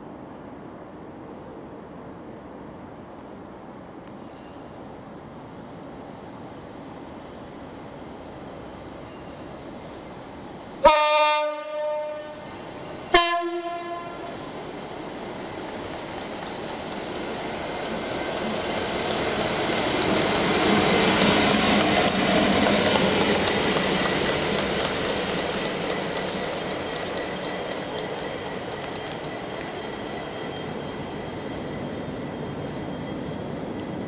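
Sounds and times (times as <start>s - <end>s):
diesel locomotive engine passing: 0.0s - 34.0s
wheels clicking over rail joints: 14.4s - 34.0s.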